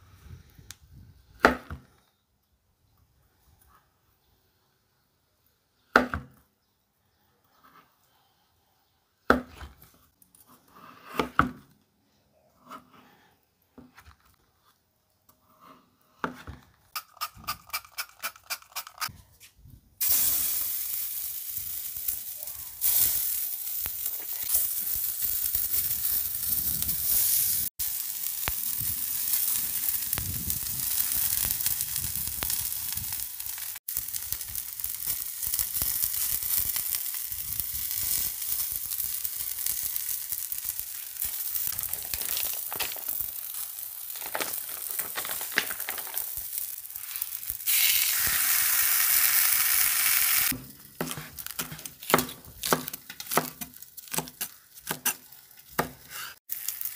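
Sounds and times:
egg sizzling in hot pan: 20.0s - 51.5s, 56.4s - 56.9s.

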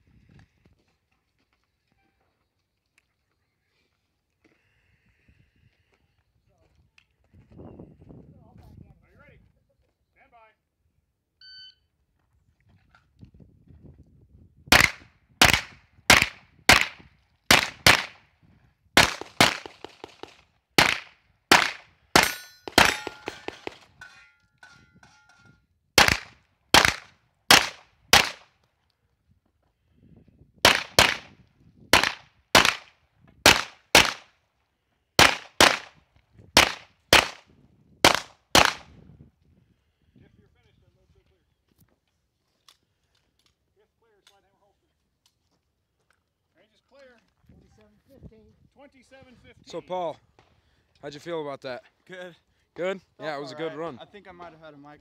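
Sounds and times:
pistol shots: 14.7s - 18.2s, 19.0s - 23.8s, 26.0s - 28.4s, 30.6s - 31.3s, 31.9s - 32.9s, 33.5s - 34.3s, 35.2s - 35.9s, 36.6s - 37.4s, 38.0s - 38.9s.

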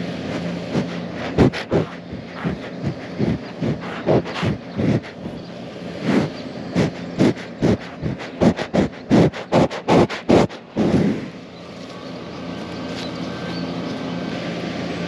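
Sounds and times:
low engine hum: 0.0s - 15.0s
cow sniffing and blowing: 0.1s - 11.4s
faint bird chirps: 0.8s - 9.8s, 11.4s - 14.3s.

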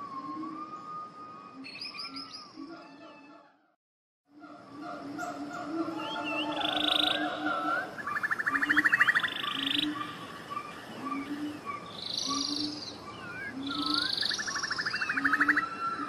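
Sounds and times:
frog croaking: 4.3s - 10.3s, 13.5s - 15.7s
birds chirping: 4.4s - 16.0s.

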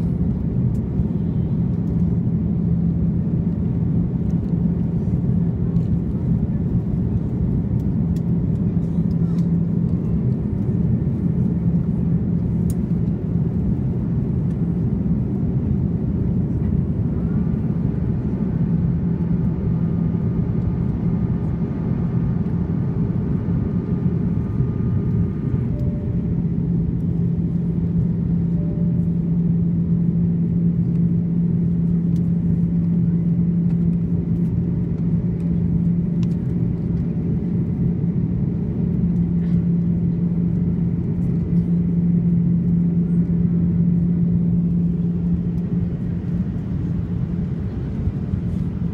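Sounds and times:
jet engines in cabin: 0.0s - 48.9s
steady low hum: 0.0s - 48.9s.

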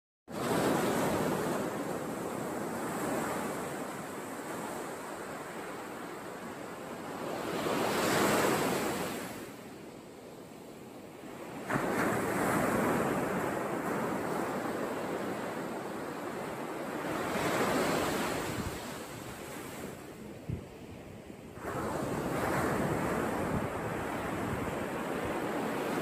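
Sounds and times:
wind: 0.3s - 26.0s
surf washing onto beach: 21.5s - 26.0s.

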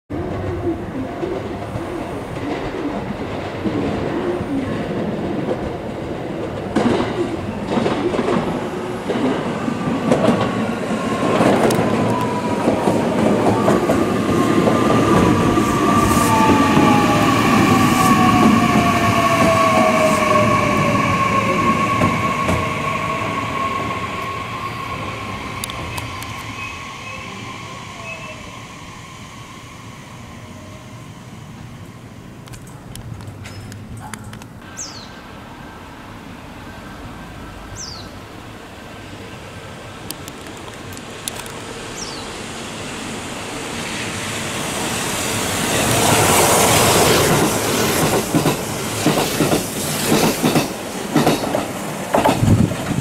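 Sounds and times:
train wheels clicking over rail joints: 5.4s - 15.4s, 45.8s - 53.0s.

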